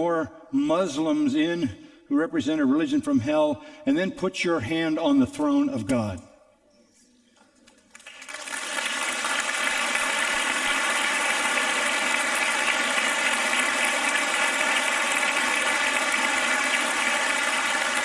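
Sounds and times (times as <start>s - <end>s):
congregation applauding: 7.7s - 18.0s.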